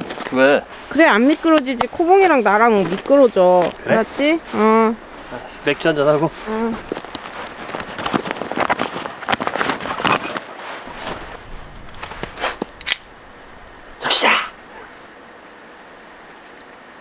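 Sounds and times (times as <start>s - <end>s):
small clicks and rustles: 0.0s - 15.2s
loud hissing burst: 10.8s - 16.4s.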